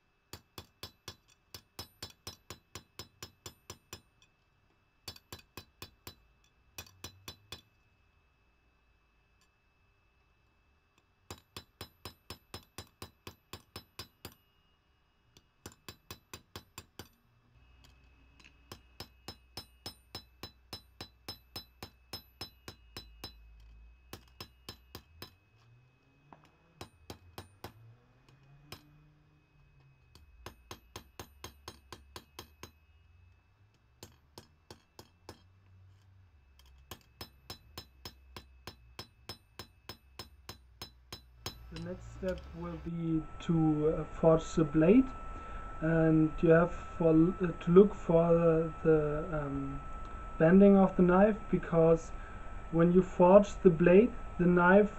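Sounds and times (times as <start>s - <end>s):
hammer striking steel on anvil: 0.3s - 4.1s, 5.0s - 6.2s, 6.8s - 7.7s, 11.3s - 14.4s, 15.4s - 17.2s, 18.4s - 25.4s, 26.4s - 27.8s, 30.1s - 32.8s, 34.0s - 35.5s, 36.6s - 42.8s
low hum: 41.3s - 54.9s.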